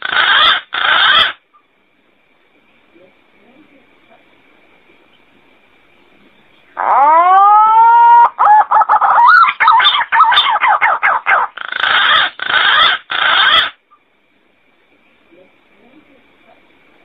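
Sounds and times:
pigeon song: 0.0s - 1.4s, 6.4s - 13.8s.

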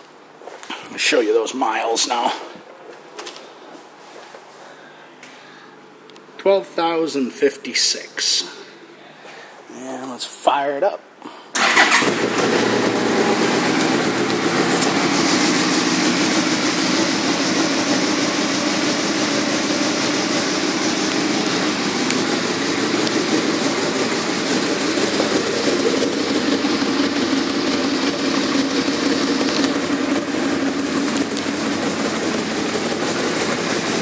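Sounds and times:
motorcycle electric starter: 11.6s - 34.0s
motorcycle engine idling: 11.6s - 34.0s.

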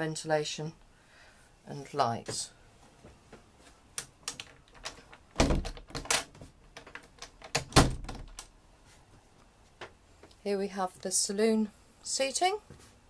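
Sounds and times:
irregular clicks and knocks: 3.3s - 8.6s.

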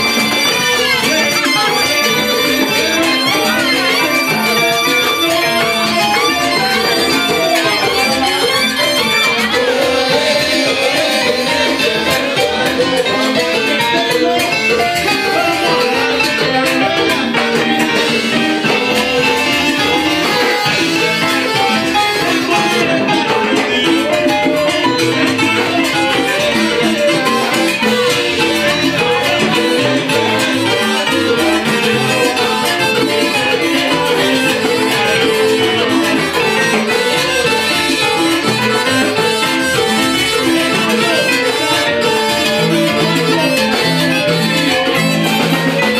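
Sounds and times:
guitar: 0.0s - 45.9s
percussion beat: 0.0s - 45.9s
salsa band playing: 0.0s - 45.9s.

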